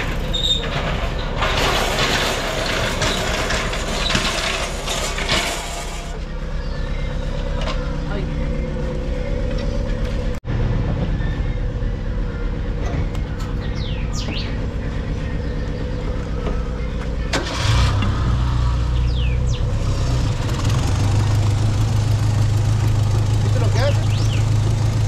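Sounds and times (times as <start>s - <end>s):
car engine idling: 5.7s - 25.0s.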